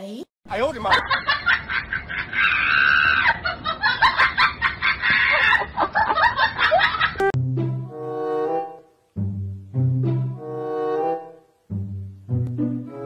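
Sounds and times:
people laughing and shrieking: 1.0 - 7.2
music with low bass notes: 7.3 - 8.6, 9.2 - 13.0.

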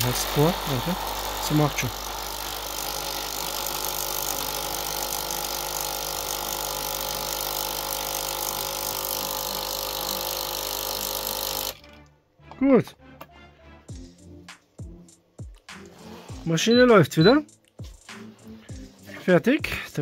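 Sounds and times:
coffee machine pump humming: 0.0 - 11.8.

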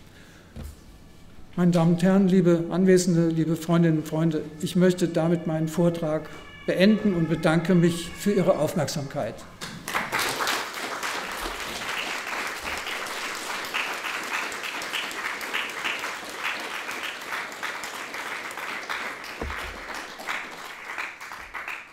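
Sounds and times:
audience applauding: 9.6 - 21.9.

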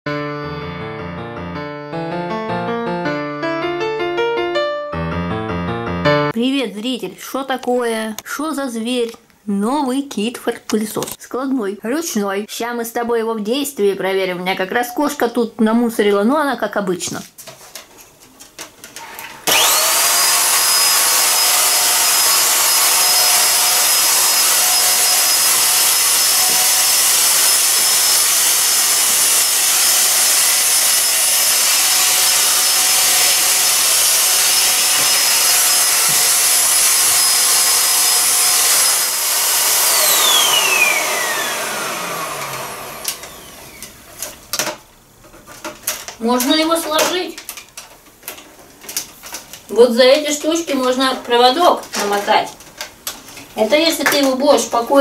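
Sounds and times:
vacuum cleaner motor whine: 19.0 - 44.0.

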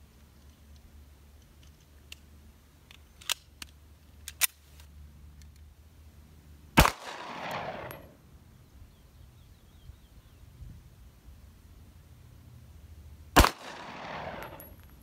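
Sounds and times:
pistol loading clicks: 0.4 - 5.7, 13.4 - 15.0
pistol shot echoing: 6.8 - 8.1, 13.4 - 14.7.

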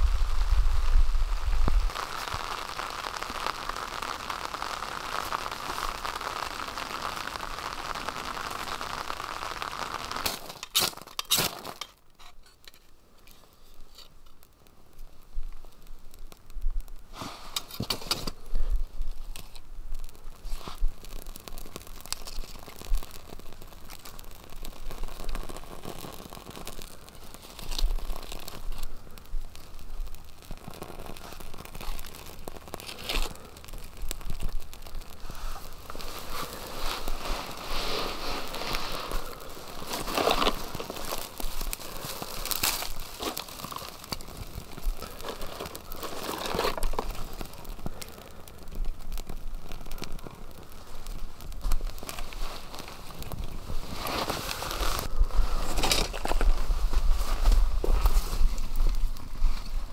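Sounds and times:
crackling fire catching: 0.0 - 59.9
rain on a tarp: 0.0 - 59.9
match being struck: 9.5 - 14.4, 17.1 - 18.5, 30.2 - 48.3.

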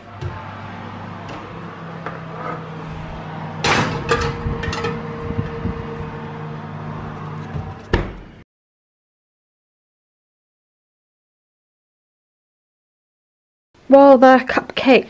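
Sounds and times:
steady low hum: 0.0 - 8.4
oven door thudding shut: 0.2 - 6.2, 7.1 - 8.4.

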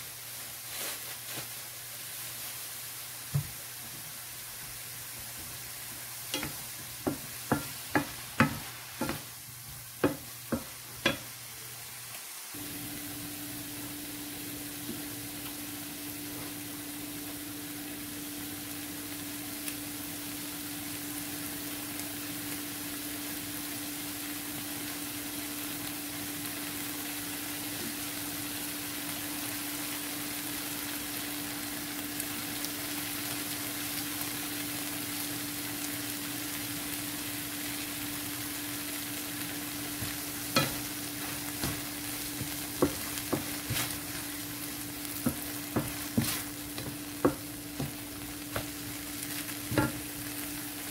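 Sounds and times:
vegetables sizzling in a frying pan: 0.0 - 50.9
wooden spoon scraping a pan: 6.3 - 9.3, 40.0 - 50.2.

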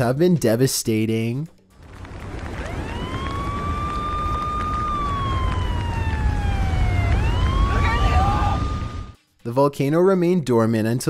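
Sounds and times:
fire engine siren wailing: 1.8 - 9.2
low rumble: 1.8 - 9.2.

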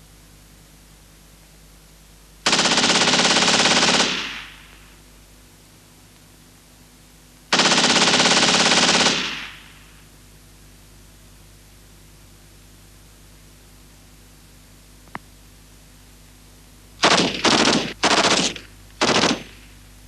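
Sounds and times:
machine-gun fire: 2.4 - 5.0, 7.5 - 10.1, 17.0 - 19.8.

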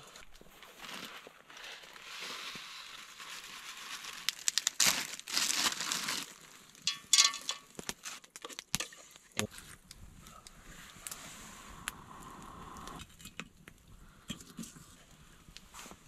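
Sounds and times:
food packet crinkling and tearing: 0.1 - 6.9.

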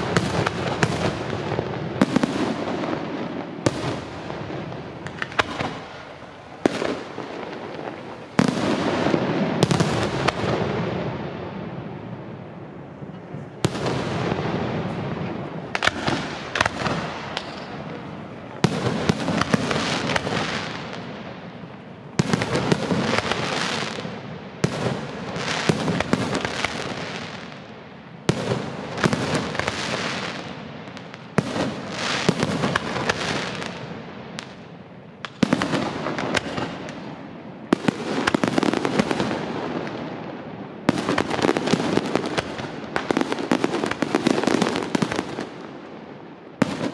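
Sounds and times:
firework pops and crackles: 0.0 - 10.8, 15.6 - 21.2, 22.2 - 27.7, 28.3 - 40.2, 40.8 - 45.8.

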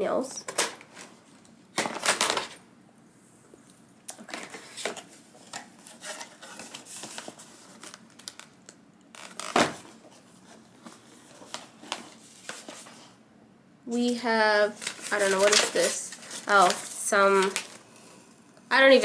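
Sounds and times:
cardboard and paper rustling: 4.2 - 8.6, 9.2 - 13.2, 14.5 - 17.9.

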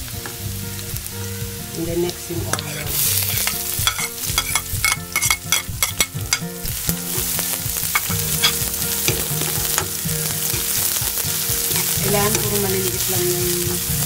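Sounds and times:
onion sizzling in hot oil: 0.0 - 14.0
spatula scraping and clicking on wok: 2.5 - 12.7.

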